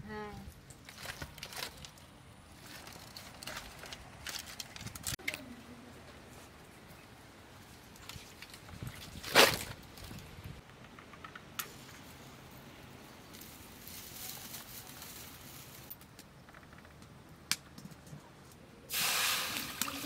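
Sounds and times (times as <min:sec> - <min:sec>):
straw crackling and hissing: 0:18.9 - 0:20.0.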